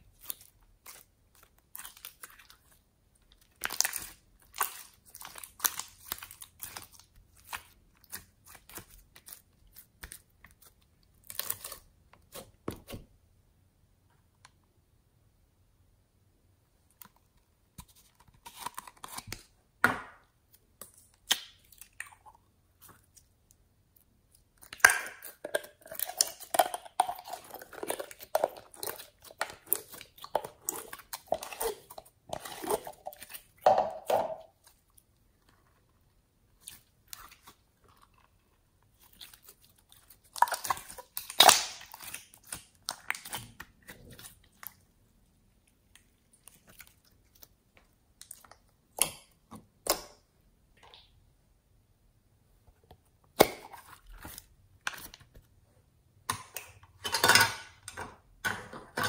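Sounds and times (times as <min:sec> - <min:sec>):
slime squelching and popping: 0:00.0 - 0:13.0, 0:23.9 - 0:35.2, 0:36.5 - 0:44.9.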